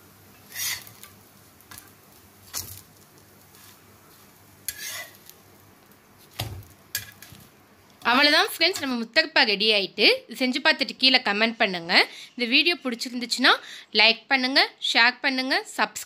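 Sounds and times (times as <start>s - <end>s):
faint food sizzling: 0.0s - 13.5s
metal spatula scraping a griddle: 0.5s - 1.9s, 3.5s - 5.4s.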